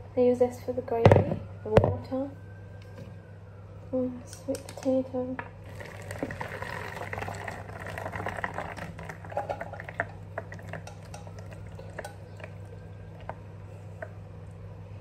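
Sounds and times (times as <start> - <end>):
steady low hum: 0.0 - 15.0
water pouring through colander: 5.7 - 13.4
water dripping: 5.7 - 14.2.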